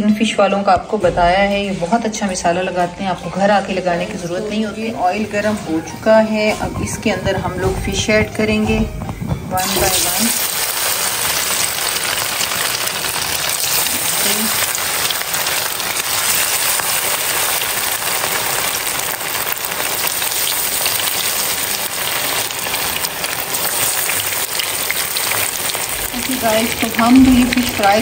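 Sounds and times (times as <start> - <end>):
fish deep-frying in sizzling oil: 9.6 - 28.0.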